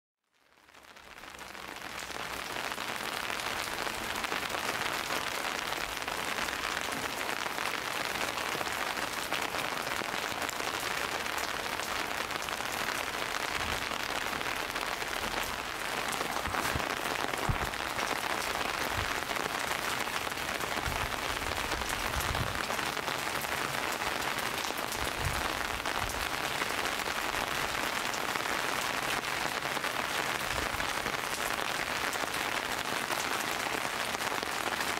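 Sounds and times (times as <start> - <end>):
steady rain falling: 0.3 - 34.9
soft low thuds: 16.5 - 17.8.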